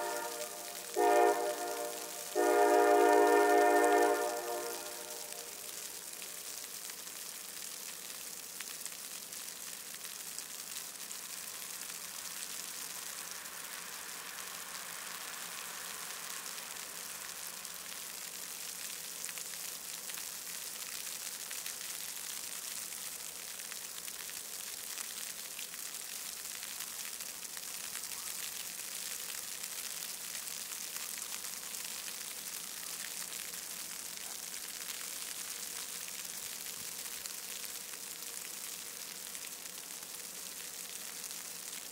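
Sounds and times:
steady high hiss: 0.0s - 25.5s.

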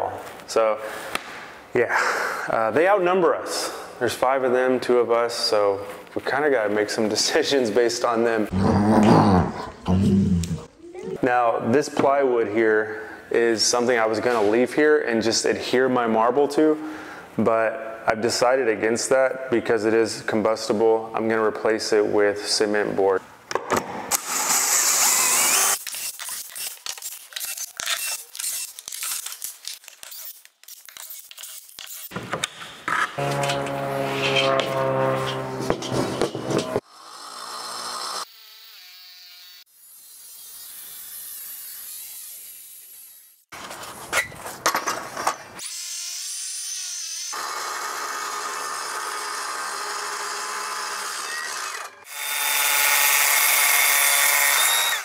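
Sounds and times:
loud tearing rasp: 24.2s - 32.1s
circular saw cutting board: 33.1s - 43.4s
utility knife scraping a board: 33.2s - 36.8s.

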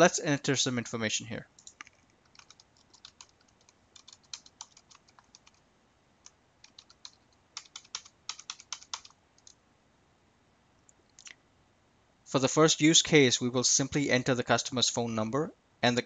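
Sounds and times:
keyboard keys tapping: 1.6s - 5.6s, 6.2s - 9.6s.

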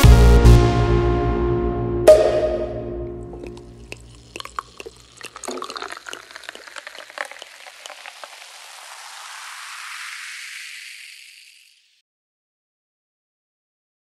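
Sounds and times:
background music: 0.0s - 3.8s
fizzing hiss: 3.3s - 12.0s.

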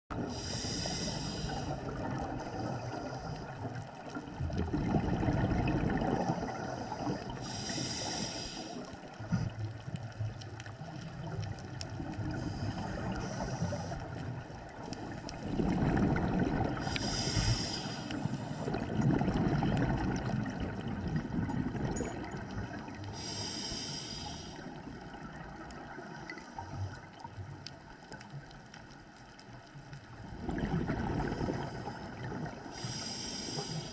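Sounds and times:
regulator inhalation hiss: 0.2s - 1.8s, 6.7s - 8.9s, 12.3s - 14.2s, 16.8s - 18.7s, 23.1s - 24.7s, 32.8s - 33.9s
exhaled bubbles rushing: 1.5s - 7.5s, 9.9s - 17.4s, 18.1s - 23.0s, 30.2s - 32.8s.

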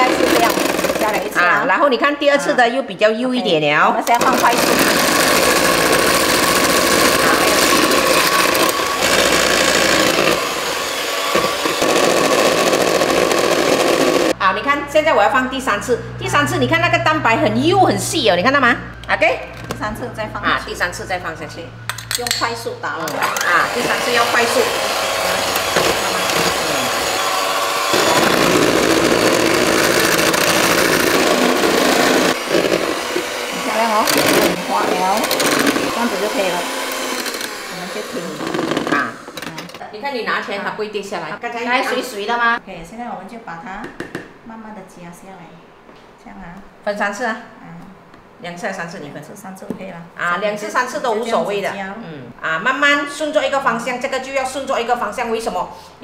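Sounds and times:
electric hand mixer motor whine: 0.0s - 1.4s, 4.2s - 14.4s, 23.1s - 39.6s.

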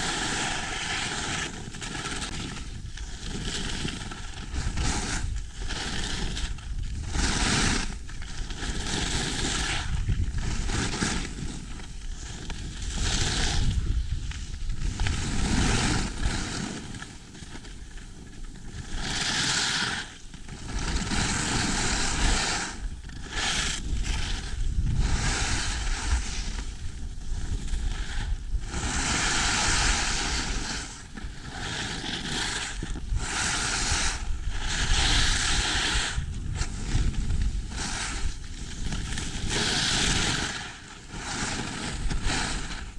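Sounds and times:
wind on microphone: 0.0s - 16.9s, 18.7s - 42.9s
skis scraping over snow: 0.0s - 42.9s.

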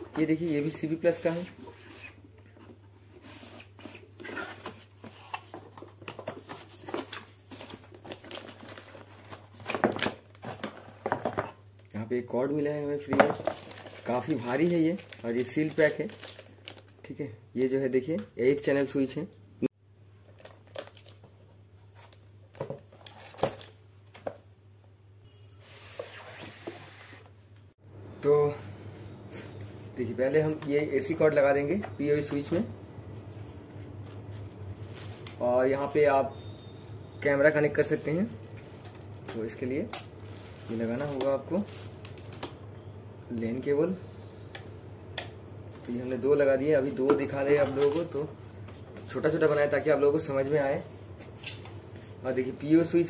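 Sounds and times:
cardboard and plastic rustling: 0.1s - 11.6s, 13.1s - 17.0s, 20.3s - 24.4s, 33.8s - 35.9s, 37.9s - 42.6s, 46.8s - 49.6s
plastic film crinkling: 13.3s - 17.0s, 37.9s - 42.4s.

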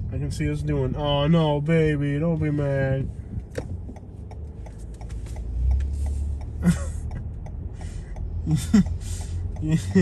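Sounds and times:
car engine and road rumble: 0.0s - 10.0s
faint regular ticking: 3.4s - 10.0s.

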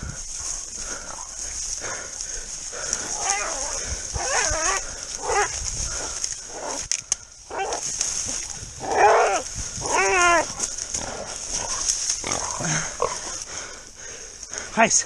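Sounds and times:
pig squealing: 3.2s - 5.5s, 8.8s - 10.6s.

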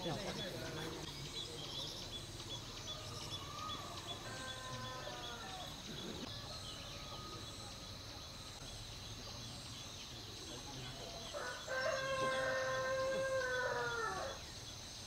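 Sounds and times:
rooster crowing: 3.4s - 5.8s, 11.3s - 14.4s.

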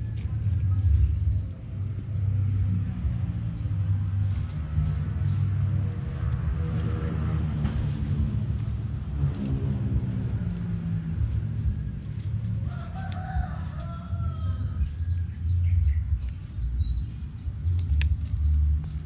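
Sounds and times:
steady low rumble: 0.0s - 19.0s
small birds chirping: 0.2s - 19.0s
rooster crowing: 11.8s - 15.3s.

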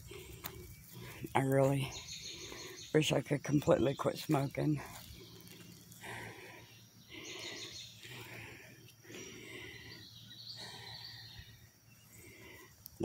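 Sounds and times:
woman breathing hard: 0.0s - 1.3s, 5.0s - 13.0s.

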